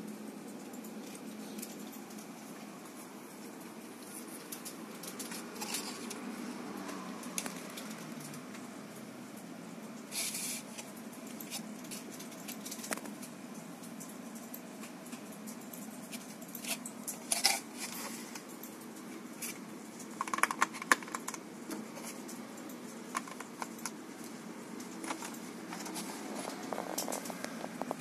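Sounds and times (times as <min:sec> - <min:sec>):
plastic tray clicks and crackles: 0:19.4 - 0:28.0.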